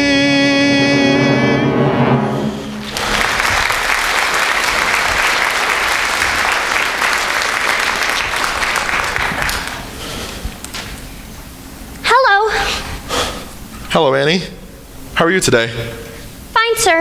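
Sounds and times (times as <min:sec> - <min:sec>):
audience applauding: 0:02.8 - 0:10.9.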